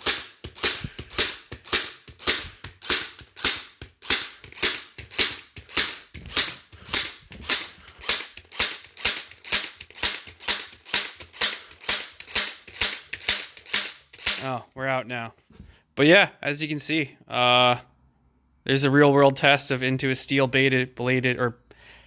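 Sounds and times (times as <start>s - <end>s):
staple gun firing: 0.0s - 14.4s.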